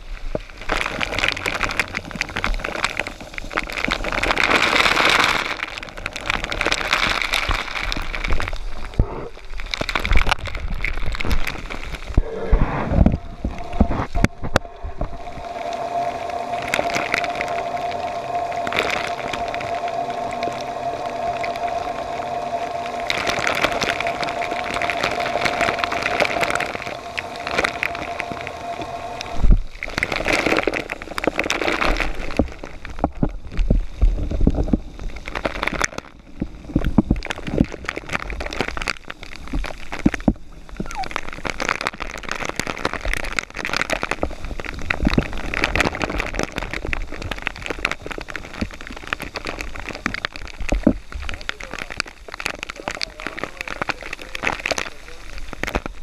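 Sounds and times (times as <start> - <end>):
shower spraying on diving gear: 0.0 - 56.0
water pattering on camera housing: 0.0 - 56.0
steady tone: 12.0 - 32.1.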